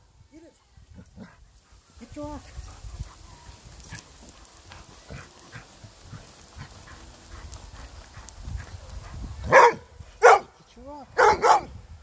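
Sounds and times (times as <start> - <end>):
dog scuffing in loose dirt: 1.2 - 10.6.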